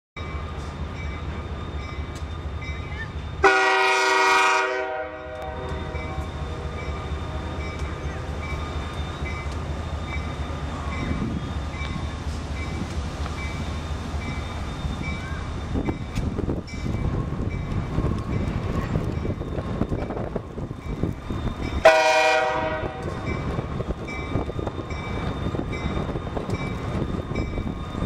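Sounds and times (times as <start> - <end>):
train rumbling: 0.2 - 28.0
locomotive air horn: 3.4 - 6.7, 21.8 - 23.1
wind on microphone: 15.0 - 28.0.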